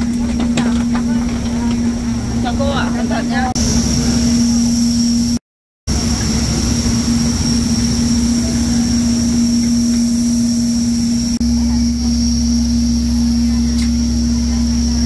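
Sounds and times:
airliner drone and whine: 0.0 - 15.0
low rumble: 0.0 - 15.0.

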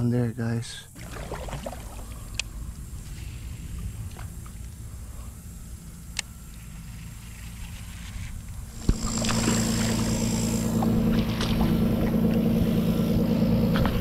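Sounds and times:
motor humming: 0.9 - 14.0
water rushing past hull: 1.0 - 5.3
motor switch click: 8.8 - 11.7.

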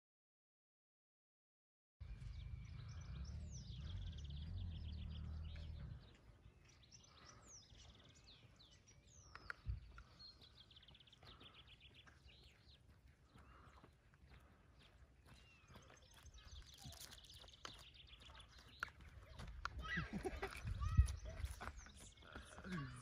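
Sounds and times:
low rumble: 2.0 - 6.8
songbirds singing and calling: 2.0 - 23.0.

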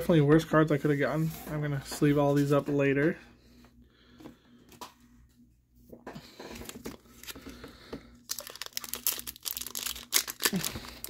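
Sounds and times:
foil pack crinkling and tearing: 6.6 - 7.6, 8.2 - 11.0.

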